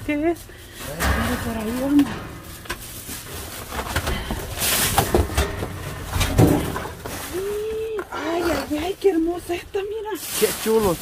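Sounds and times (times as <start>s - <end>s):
rustling through discarded goods: 0.0s - 11.0s
knocks and clatter of objects: 0.7s - 7.9s.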